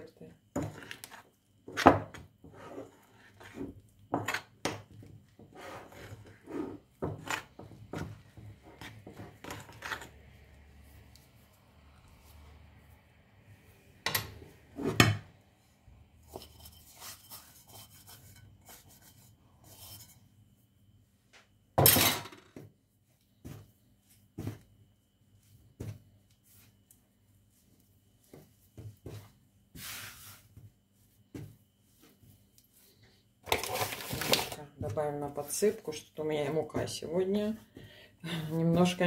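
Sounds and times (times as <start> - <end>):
hands kneading dough: 0.8 - 20.1, 22.7 - 33.3, 34.0 - 39.0
metal spoon scraping ceramic bowl: 16.2 - 20.2.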